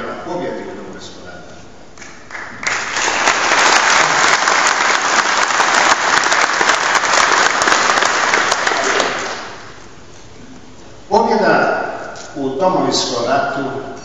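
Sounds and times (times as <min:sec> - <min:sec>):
audience applauding: 0:02.0 - 0:09.7.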